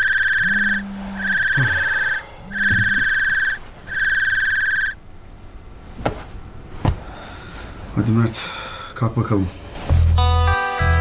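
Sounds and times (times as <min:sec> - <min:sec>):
electronic alarm beeping: 0:00.0 - 0:05.0
low buzzing tone: 0:00.0 - 0:05.3.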